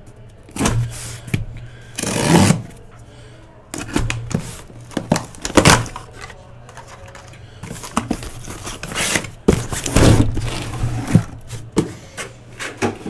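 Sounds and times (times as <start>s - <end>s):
cardboard scraping and rustling: 3.8s - 11.8s.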